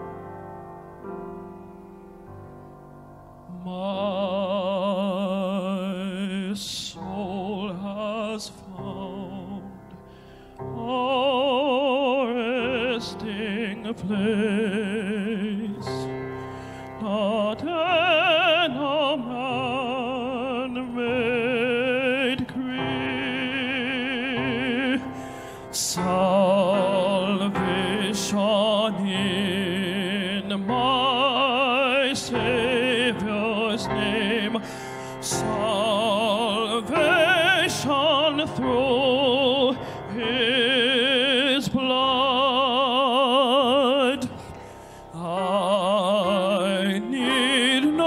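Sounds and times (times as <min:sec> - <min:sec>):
singers breathing: 0:09.9 - 0:10.6, 0:16.2 - 0:17.0, 0:25.1 - 0:25.8, 0:34.6 - 0:35.2, 0:39.8 - 0:40.1, 0:44.3 - 0:45.2
male trio singing a hymn: 0:45.1 - 0:48.0.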